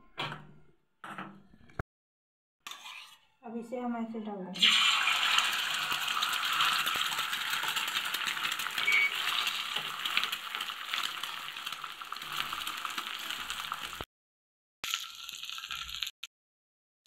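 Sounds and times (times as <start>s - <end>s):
egg sizzling in hot oil: 4.6s - 14.1s, 14.8s - 16.1s.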